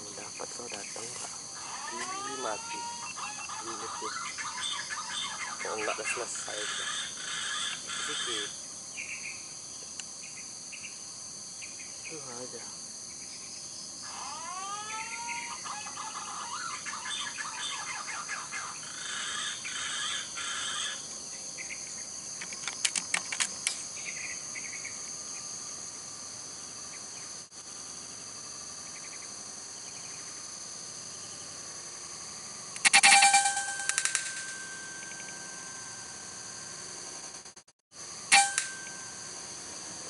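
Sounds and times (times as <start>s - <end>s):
birds chirping: 0.0s - 10.9s, 15.1s - 22.2s
insect drone: 0.0s - 40.0s
whistled gliding bird calls: 1.6s - 9.3s, 14.1s - 21.0s
sharp clicks: 22.4s - 23.8s, 32.7s - 34.6s.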